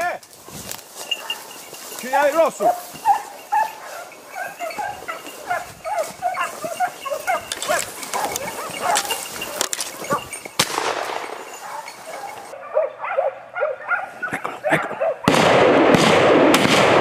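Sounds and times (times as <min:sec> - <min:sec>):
hounds baying and yelping: 0:00.3 - 0:15.3
sharp crack: 0:10.6 - 0:11.4, 0:15.3 - 0:17.0.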